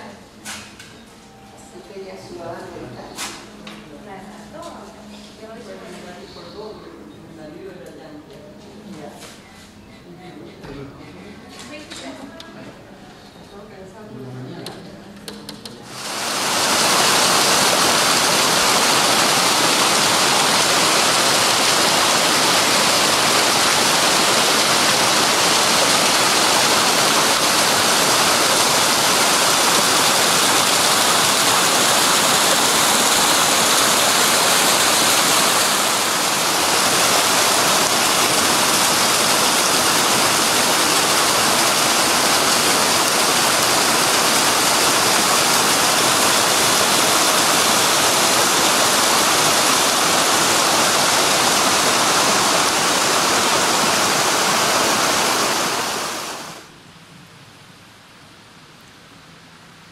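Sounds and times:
pouring water rushing: 15.9s - 56.7s.

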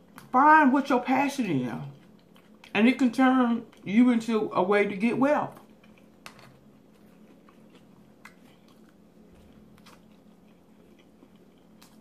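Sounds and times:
soft chewing: 0.0s - 0.4s, 1.4s - 4.1s, 5.4s - 12.0s
low steady hum: 0.0s - 12.0s.

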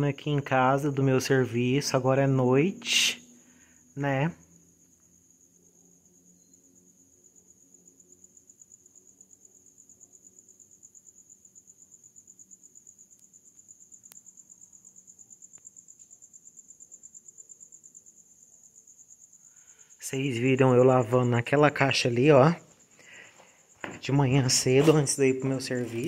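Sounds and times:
cricket chirping: 0.0s - 26.0s.

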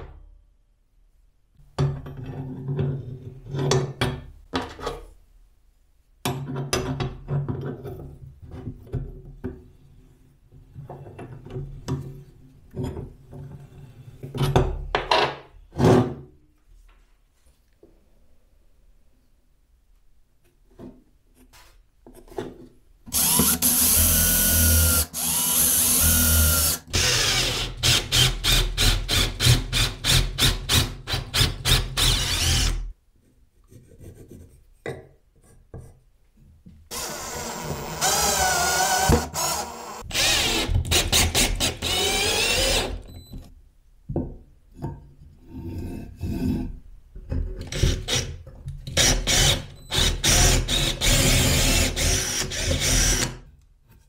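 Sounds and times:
knocks and scrapes: 20.5s - 22.9s
electric drill boring into wood: 23.1s - 30.5s, 31.3s - 32.9s, 36.9s - 43.1s, 49.0s - 53.4s.

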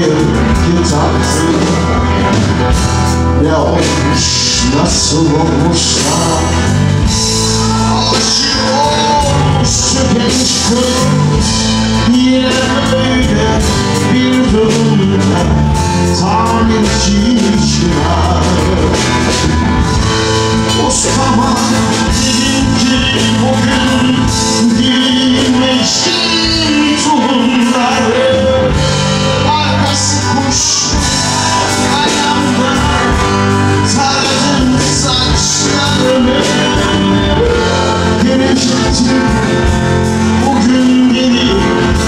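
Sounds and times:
live rock band playing: 0.0s - 42.0s.

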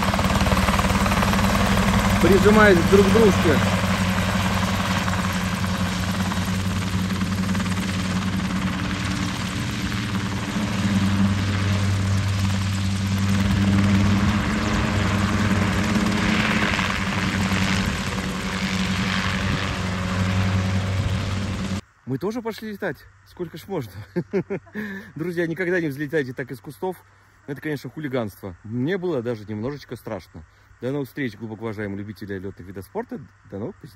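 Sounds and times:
helicopter engine and rotor drone: 0.0s - 21.8s.

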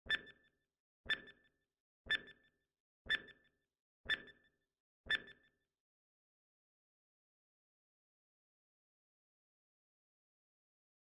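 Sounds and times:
electronic countdown beep: 0.0s - 0.5s, 1.1s - 5.6s.

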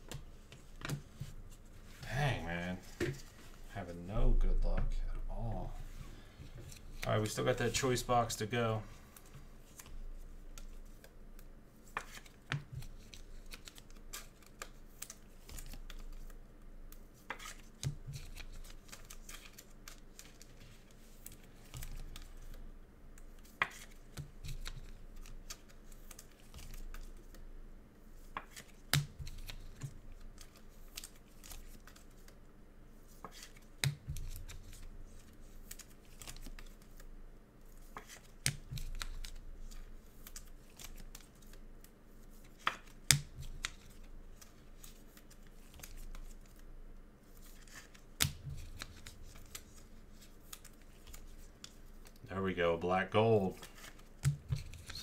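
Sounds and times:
cards clicking and sliding: 9.1s - 22.6s, 23.2s - 27.4s, 33.1s - 37.0s, 37.7s - 46.6s, 47.3s - 52.2s, 53.6s - 55.0s.

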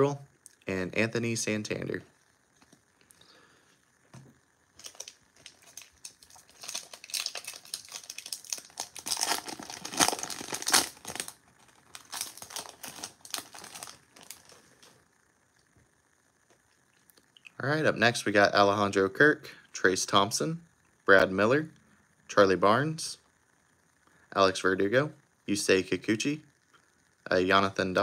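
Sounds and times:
wrapper being torn open: 4.8s - 14.9s.

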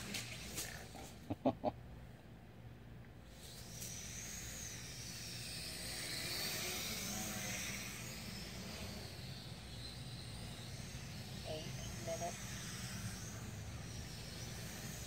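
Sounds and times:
drone motors and propellers whining: 3.2s - 15.0s.

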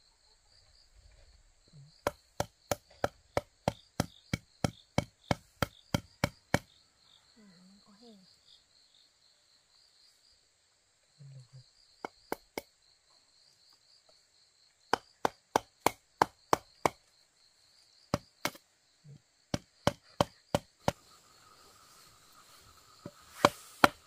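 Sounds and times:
insects chirping: 0.0s - 24.0s
blade chopping blows: 23.0s - 24.0s.

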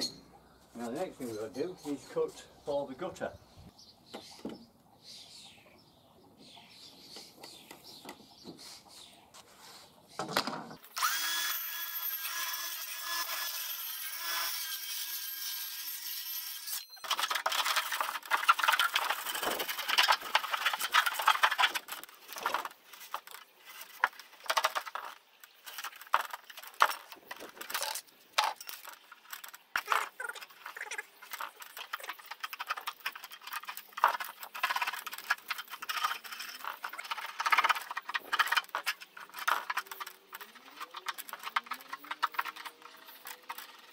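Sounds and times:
power tool running: 10.9s - 16.8s.

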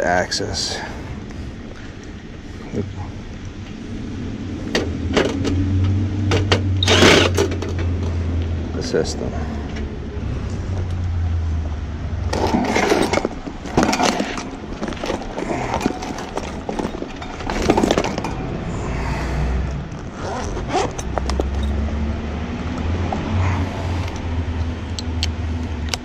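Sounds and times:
steady low hum: 0.0s - 26.0s
sheet metal scraping and clattering: 12.3s - 18.5s.

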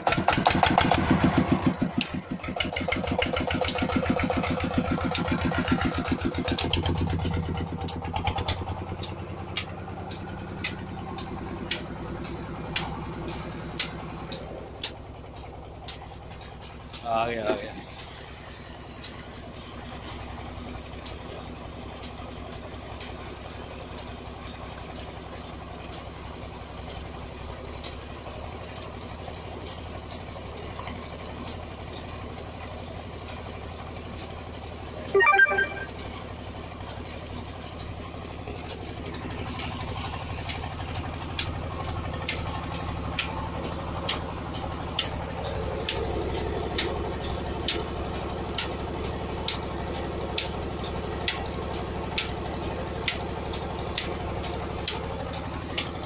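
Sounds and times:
diesel engine running: 0.0s - 56.0s
water gushing from pipe: 15.7s - 35.0s.

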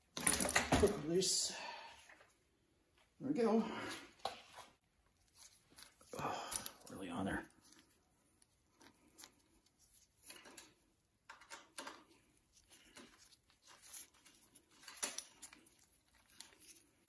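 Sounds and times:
gloved hands rustling: 4.0s - 17.0s.

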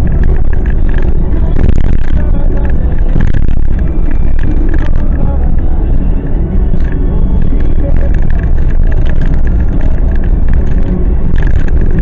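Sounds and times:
car engine and road rumble: 0.0s - 12.0s.

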